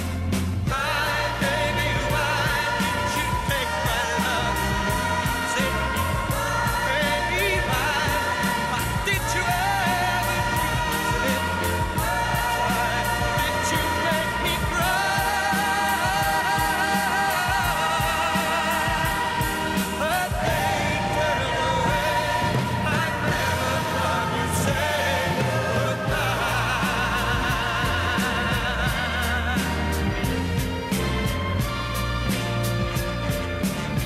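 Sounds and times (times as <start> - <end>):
pop band with steady beat: 0.0 - 34.0
man singing: 0.7 - 30.4.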